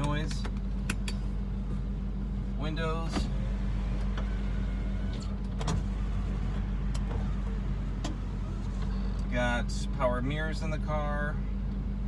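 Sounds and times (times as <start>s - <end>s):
car engine idling: 0.0s - 12.0s
power window motor running: 2.8s - 9.3s.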